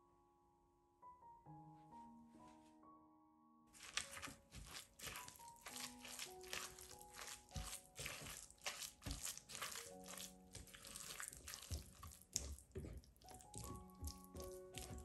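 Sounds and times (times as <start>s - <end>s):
soft background music: 0.0s - 15.0s
spatula scraping wet mixture in bowl: 3.8s - 15.0s.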